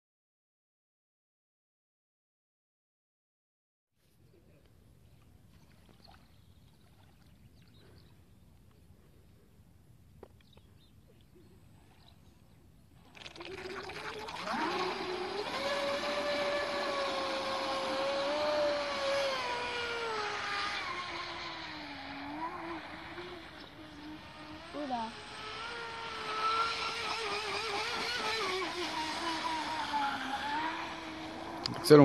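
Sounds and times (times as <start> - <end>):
water rushing: 13.0 - 32.0
electric motor whine: 13.3 - 32.0.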